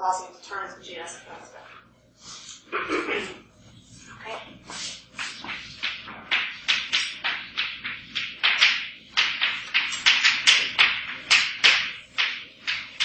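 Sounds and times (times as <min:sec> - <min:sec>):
chalk tapping and scraping: 0:03.7 - 0:13.0.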